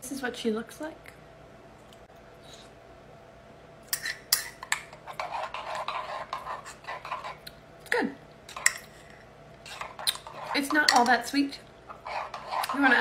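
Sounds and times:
spoon clinking and scraping in mug: 0:04.0 - 0:07.4.

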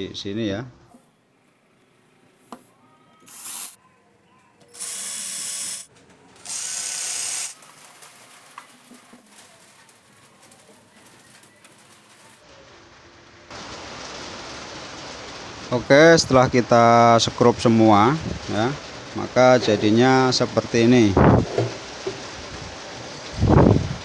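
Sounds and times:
cordless drill running: 0:04.8 - 0:07.6
handling noise: 0:21.2 - 0:22.3.

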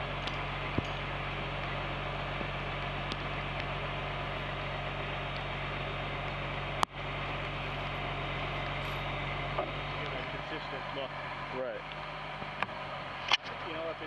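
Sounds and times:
diesel engine running: 0:00.0 - 0:14.0.

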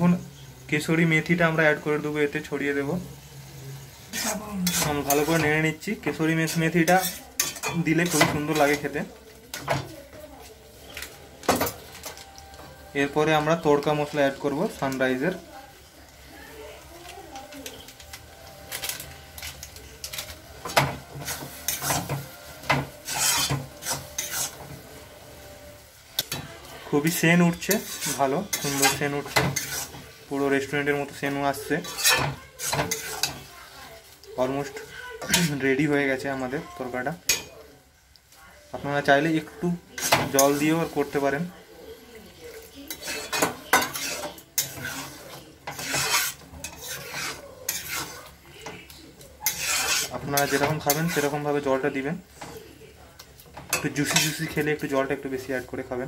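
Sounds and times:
steel spatula scraping a pan: 0:03.5 - 0:09.9, 0:18.8 - 0:25.5, 0:26.2 - 0:37.6, 0:39.4 - 0:41.5, 0:42.6 - 0:52.6, 0:53.6 - 0:55.7.

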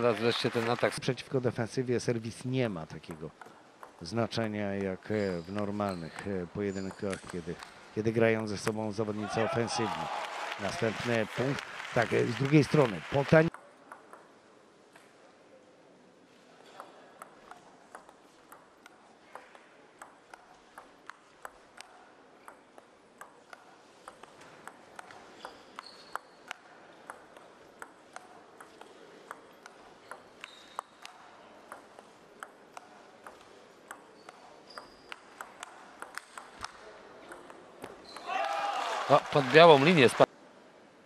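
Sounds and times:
table tennis ball clicking: 0:16.8 - 0:38.0.

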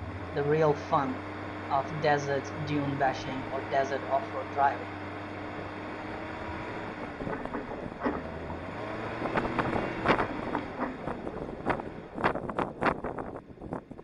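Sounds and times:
car engine running: 0:00.0 - 0:14.0
wind rushing over microphone: 0:05.4 - 0:14.0
knocks and thumps: 0:06.4 - 0:13.2.

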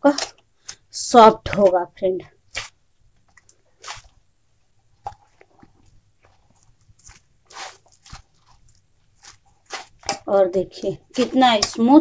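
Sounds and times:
dough squishing in steel bowl: 0:00.0 - 0:12.0.

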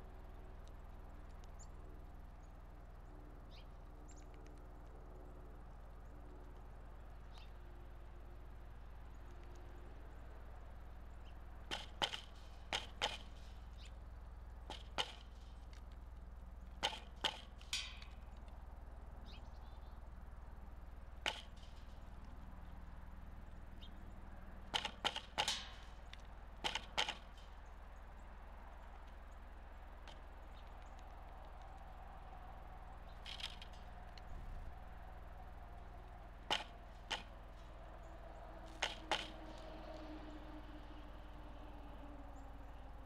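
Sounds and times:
woodpecker knocking on wood: 0:11.6 - 0:18.6, 0:21.2 - 0:22.6, 0:23.5 - 0:31.9, 0:32.8 - 0:34.9, 0:35.9 - 0:38.0, 0:38.6 - 0:40.1.

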